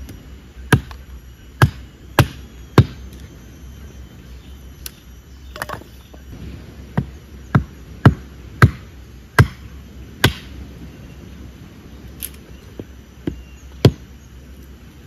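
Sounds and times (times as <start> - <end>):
hatchet splitting firewood: 0.0 - 3.0, 6.9 - 10.6, 12.2 - 14.1.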